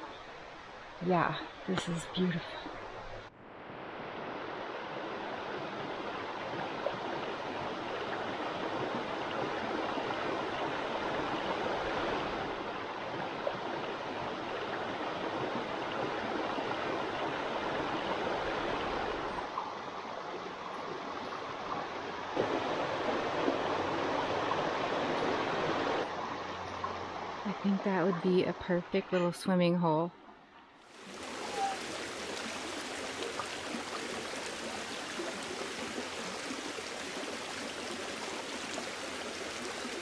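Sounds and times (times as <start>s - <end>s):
brook rushing over stones: 30.9s - 40.0s.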